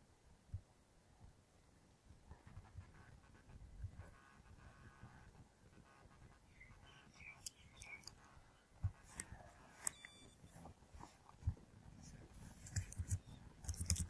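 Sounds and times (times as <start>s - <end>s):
computer mouse clicks: 7.2s - 8.3s, 8.9s - 10.4s, 12.5s - 14.0s.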